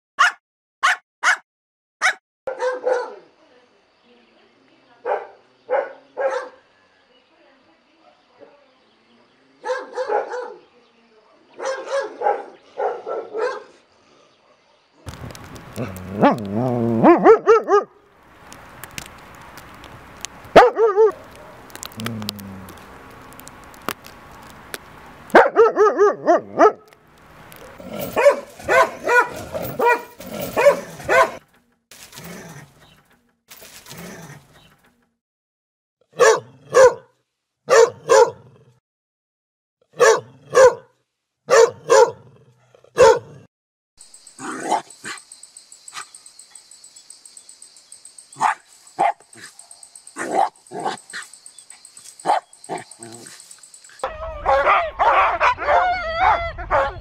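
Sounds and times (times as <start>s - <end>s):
dogs barking: 0.2s - 1.4s, 2.0s - 3.2s, 5.1s - 6.6s, 9.6s - 10.6s, 11.6s - 13.8s, 15.7s - 18.0s, 20.5s - 22.3s, 25.3s - 31.4s, 36.2s - 37.1s, 37.7s - 38.5s, 40.0s - 40.9s, 41.5s - 42.3s, 42.9s - 43.5s, 44.4s - 45.2s, 48.4s - 51.4s, 52.2s - 57.0s.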